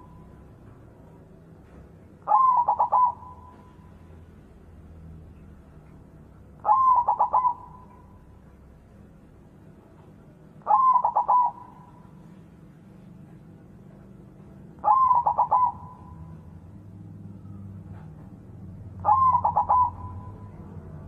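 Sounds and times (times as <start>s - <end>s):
dove cooing: 2.2s - 4.0s, 6.6s - 8.3s, 10.6s - 12.4s, 14.8s - 16.5s, 19.0s - 20.6s.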